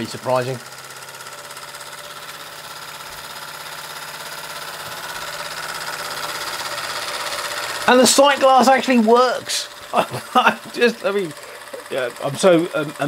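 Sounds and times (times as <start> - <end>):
steam engine beating: 0.0 - 13.0
steam hissing: 0.8 - 13.0.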